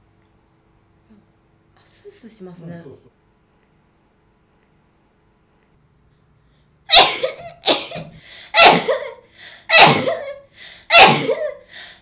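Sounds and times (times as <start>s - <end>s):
woman sneezing: 6.9s - 11.6s.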